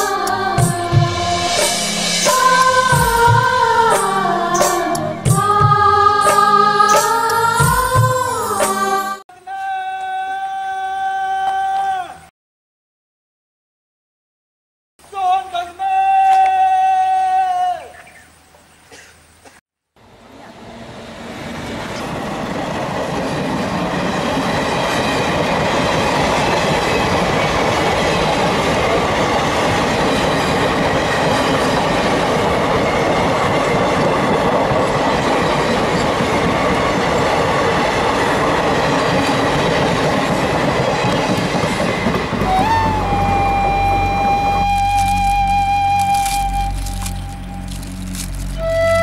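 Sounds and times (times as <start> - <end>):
train wheels on rails: 20.0 - 49.0.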